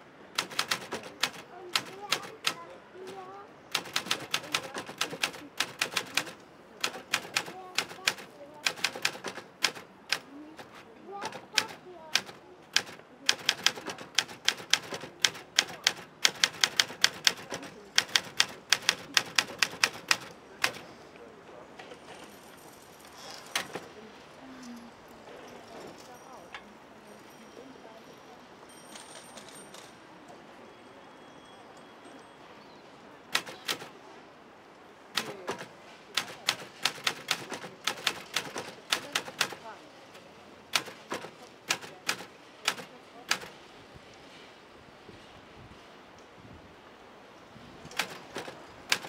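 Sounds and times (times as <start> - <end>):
typewriter keys clacking: 0.4 - 20.9, 23.4 - 24.0, 33.3 - 34.0, 35.2 - 39.7, 40.7 - 43.5, 47.9 - 49.0.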